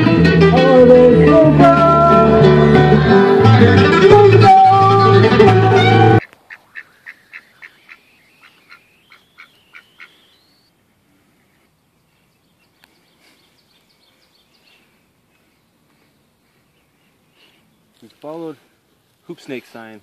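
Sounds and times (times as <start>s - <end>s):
duck quacking: 6.0s - 10.5s
faint bird chirps: 6.2s - 18.0s.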